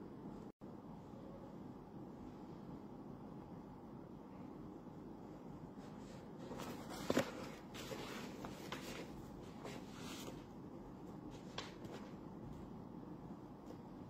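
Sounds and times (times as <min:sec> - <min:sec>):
rustling and handling noises: 0:05.4 - 0:14.0.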